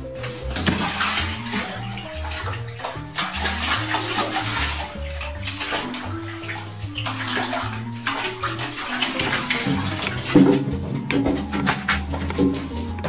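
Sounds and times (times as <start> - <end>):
background music with stepping bass: 0.0 - 13.0
water splashing in a bathtub: 0.0 - 13.0
cat scrabbling at tub side: 0.2 - 13.0.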